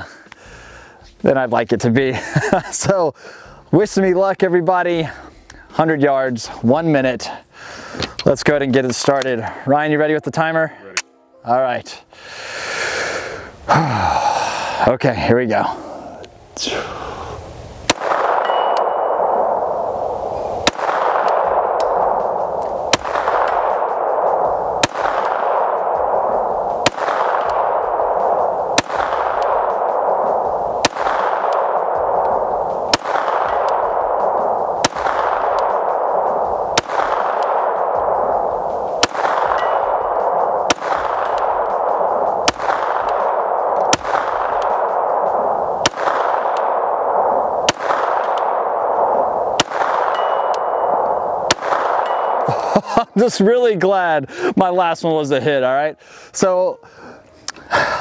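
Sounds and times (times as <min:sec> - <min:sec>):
pistol shots with long echo: 0:17.9 - 0:52.6.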